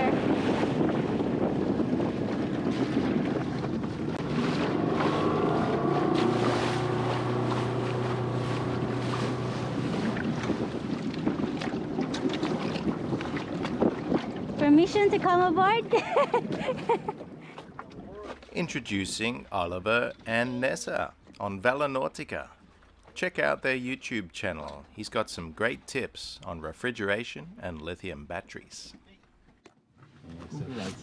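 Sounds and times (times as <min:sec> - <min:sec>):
wind buffeting microphone: 0:00.0 - 0:20.2
outboard motor running: 0:00.0 - 0:23.2
waves slapping hull: 0:00.0 - 0:31.0.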